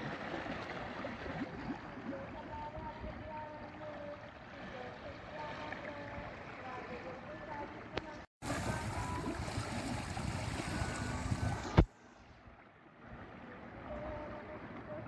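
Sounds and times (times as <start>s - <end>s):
wind and sea rumbling hiss: 8.4s - 15.0s.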